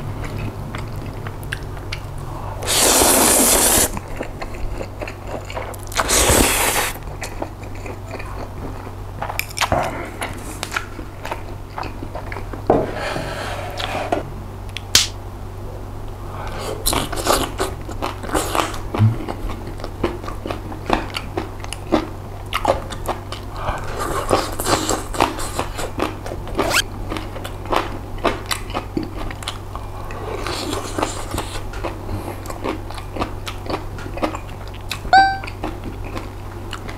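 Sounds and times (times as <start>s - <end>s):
chewing with mouth clicks: 0.2s - 2.2s, 2.8s - 12.6s, 16.8s - 36.9s
noodle slurping: 2.6s - 4.0s, 6.0s - 7.0s.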